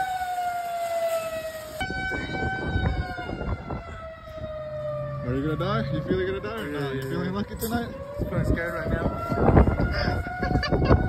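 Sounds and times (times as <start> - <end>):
warning siren wailing: 0.0 - 11.0
wind rumble on microphone: 1.8 - 6.6, 7.3 - 11.0.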